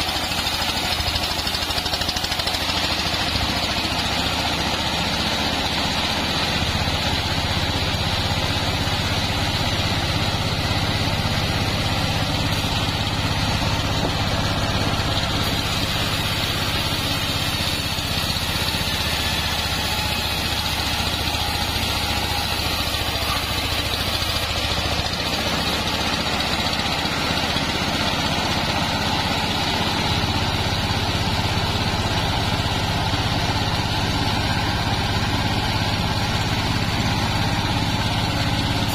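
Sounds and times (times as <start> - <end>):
bandsaw mill drive drone: 0.0 - 38.9
saw blade hissing through log: 10.3 - 27.1, 38.4 - 38.9.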